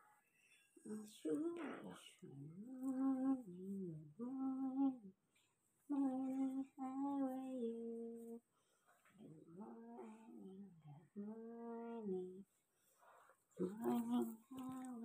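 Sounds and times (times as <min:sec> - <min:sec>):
woman humming a lullaby: 0:00.9 - 0:05.1, 0:05.9 - 0:08.4, 0:09.2 - 0:12.4, 0:13.6 - 0:15.0.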